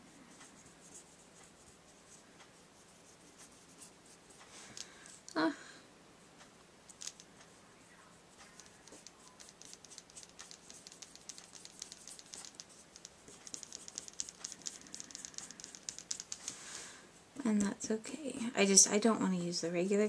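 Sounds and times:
brush pen scratching on paper: 0:00.0 - 0:04.4, 0:08.3 - 0:16.6.

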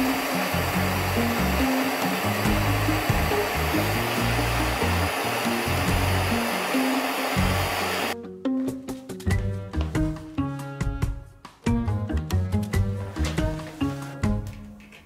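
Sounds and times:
gas torch flame hissing: 0:00.0 - 0:08.2
background music with plucked notes: 0:00.0 - 0:15.0.

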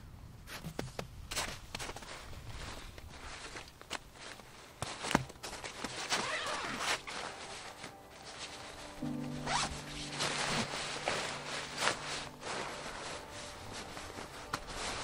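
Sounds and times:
soft background music: 0:04.4 - 0:15.0
zipper being pulled: 0:05.8 - 0:15.0.

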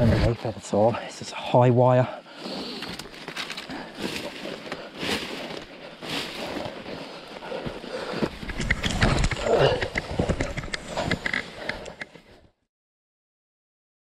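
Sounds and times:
branches rustling and crackling: 0:02.3 - 0:11.8.

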